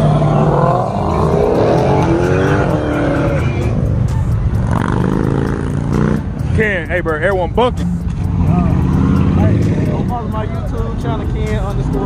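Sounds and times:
car engine revving high: 0.0 - 6.5, 7.6 - 10.3.

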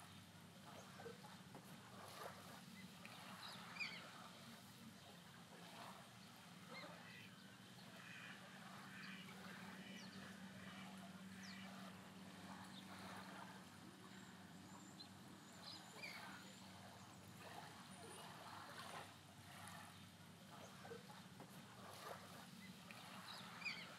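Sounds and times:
low steady hum: 0.0 - 23.9
faint chirps: 14.1 - 17.3.

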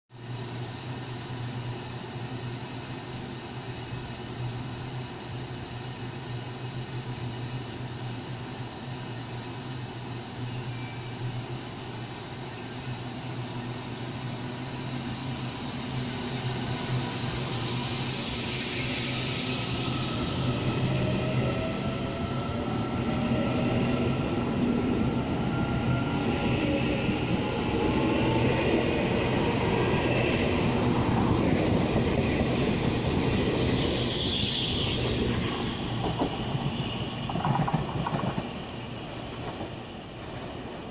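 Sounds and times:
wheels rumbling on rails: 10.5 - 40.9
high wheel squeal: 33.6 - 35.9.

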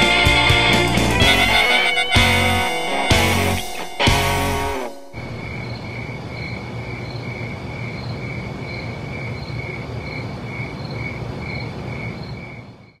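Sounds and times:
low rumble of ambience: 3.2 - 9.1
insect chirping: 3.5 - 13.0.

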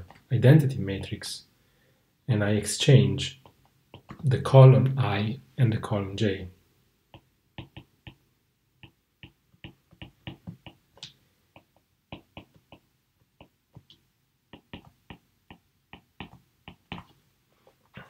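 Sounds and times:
stylus tapping on tablet screen: 3.4 - 4.2, 7.1 - 17.2.

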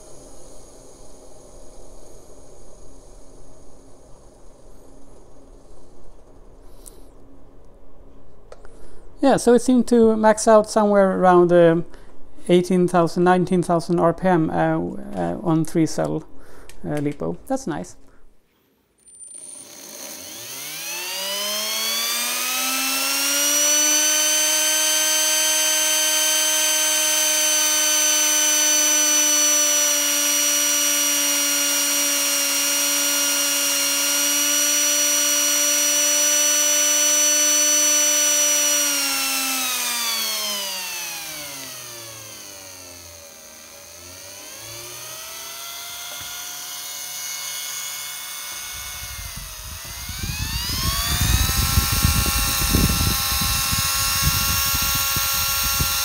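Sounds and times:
electric motor whine: 19.1 - 56.0.

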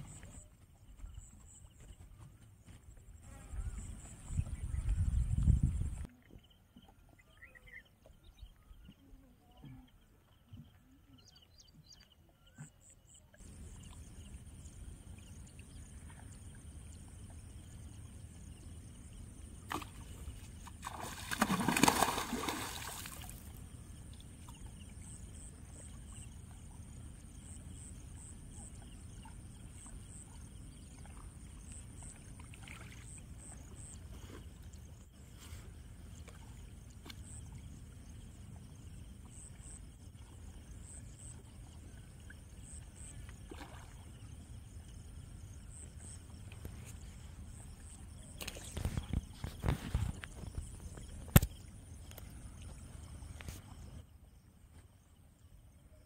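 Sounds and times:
fish splashing in water: 19.7 - 23.6
sharp click: 51.3 - 52.2.

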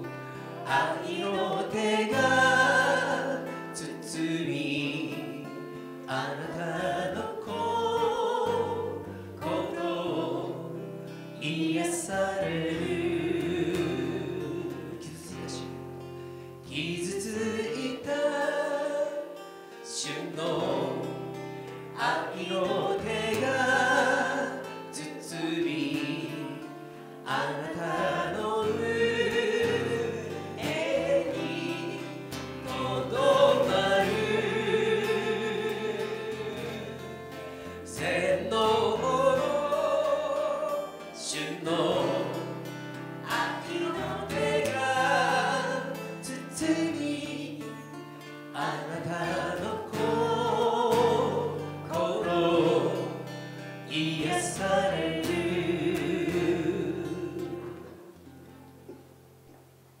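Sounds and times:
acoustic guitar: 0.0 - 60.0
woman singing into a microphone: 0.4 - 15.7, 22.0 - 37.1, 43.3 - 47.8, 48.6 - 53.2, 53.9 - 58.0.

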